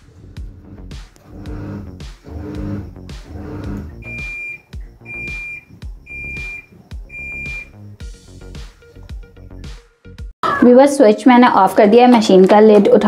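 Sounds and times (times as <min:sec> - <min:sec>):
background music: 0:00.0 - 0:13.0
washing machine high beeps: 0:03.5 - 0:07.8.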